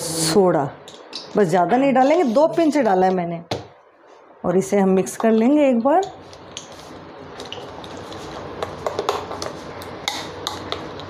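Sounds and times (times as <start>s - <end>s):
spoon stirring thick batter: 6.0s - 11.0s.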